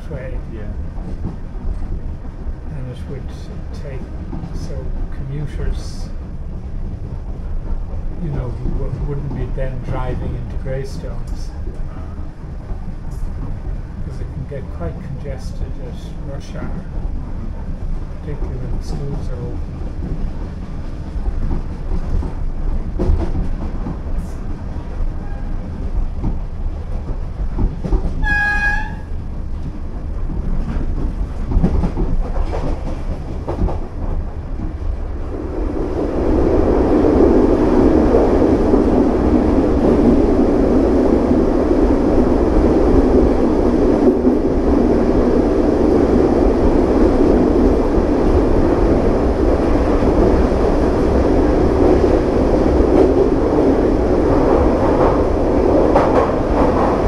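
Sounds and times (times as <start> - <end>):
train rumble in tunnel: 0.0 - 57.0
train wheels clicking over rails: 16.5 - 35.2, 46.6 - 57.0
short train horn note: 28.2 - 29.1.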